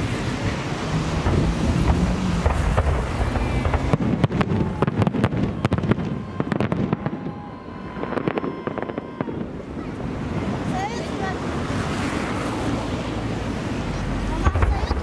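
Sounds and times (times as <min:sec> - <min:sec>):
fireworks cracks and pops: 0:01.2 - 0:09.6, 0:14.4 - 0:15.0.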